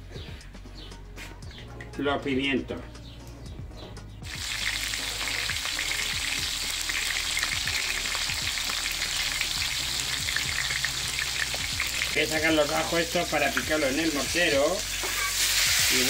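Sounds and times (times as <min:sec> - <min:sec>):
vegetables sizzling in oil: 0:04.2 - 0:16.0.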